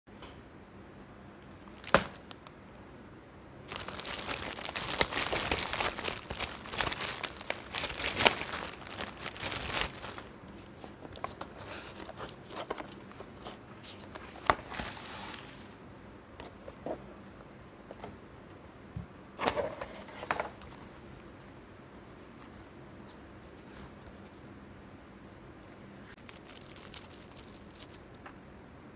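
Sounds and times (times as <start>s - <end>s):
plastic mailer tearing and crinkling: 1.8s - 2.4s, 3.7s - 10.4s, 26.2s - 28.0s.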